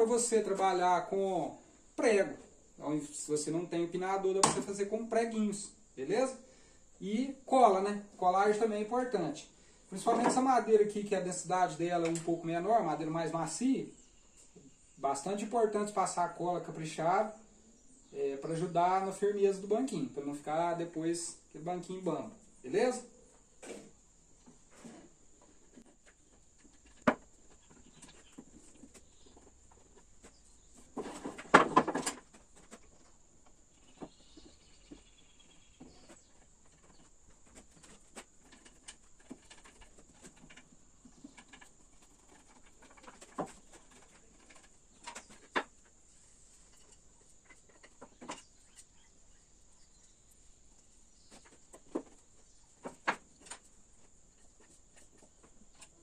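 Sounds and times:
wooden parts knocking on workbench: 0:04.4 - 0:04.7, 0:26.7 - 0:27.9, 0:31.0 - 0:32.8.

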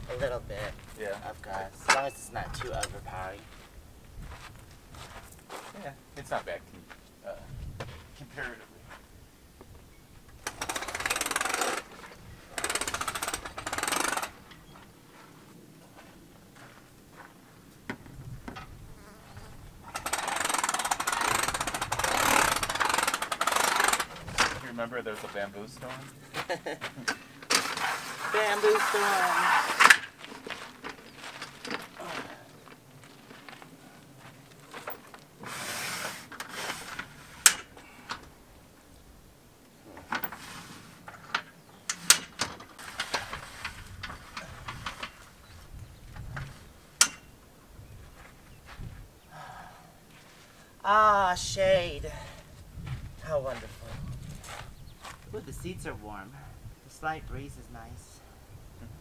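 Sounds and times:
awning motor buzzing: 0:10.4 - 0:14.4, 0:18.9 - 0:24.4
metal clicks and knocks: 0:46.2 - 0:47.3.

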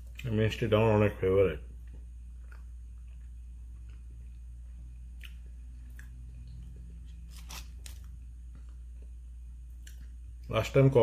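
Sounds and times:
steady low hum: 0:00.0 - 0:11.0
quiet chewing: 0:01.8 - 0:10.2.

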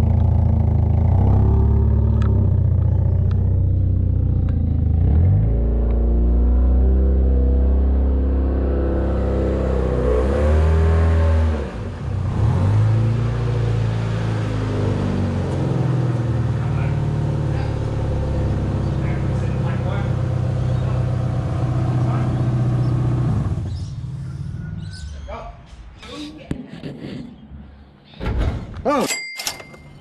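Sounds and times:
car engine running: 0:00.0 - 0:06.6, 0:14.4 - 0:24.5.

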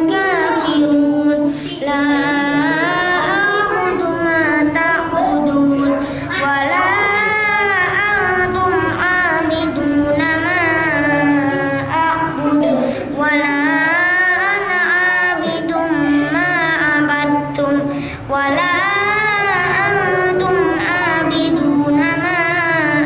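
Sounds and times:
boy chanting into a microphone: 0:00.0 - 0:23.0
boy breathing: 0:01.4 - 0:01.8, 0:05.9 - 0:06.4, 0:12.6 - 0:13.2, 0:17.8 - 0:18.3.

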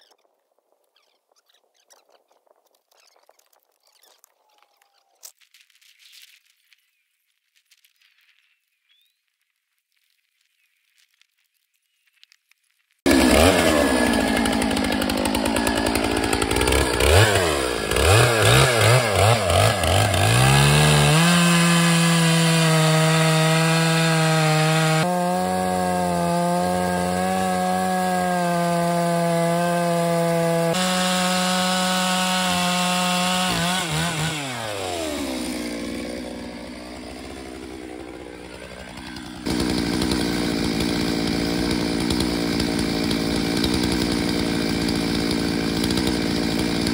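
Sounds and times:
chainsaw cutting through log: 0:13.1 - 0:46.9
chainsaw revving: 0:13.1 - 0:46.9.

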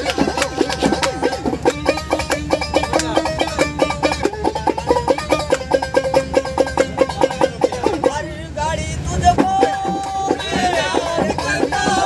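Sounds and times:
banjo-like instrument plucked melody: 0:00.0 - 0:08.4, 0:09.3 - 0:12.0
low steady rumble: 0:00.0 - 0:12.0.

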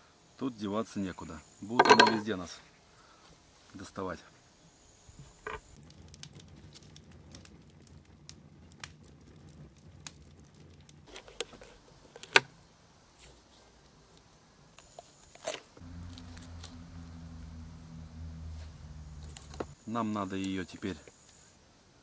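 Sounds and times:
low steady buzz: 0:15.8 - 0:20.1.

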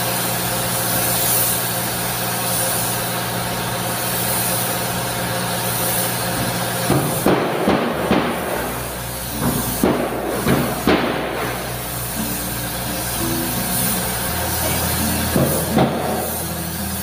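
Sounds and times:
paint spray gun hissing: 0:00.0 - 0:17.0
steady machine hum: 0:00.0 - 0:17.0.

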